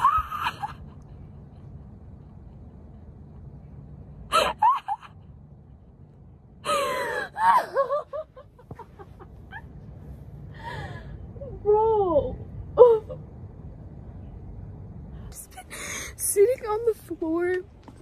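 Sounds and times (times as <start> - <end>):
woman laughing breathlessly: 0.0 - 2.1, 4.3 - 5.2, 6.6 - 9.7.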